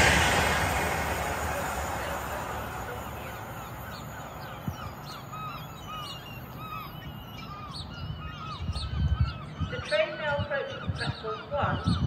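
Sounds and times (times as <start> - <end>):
train rumble: 0.0 - 6.5
birds chirping: 0.0 - 12.0.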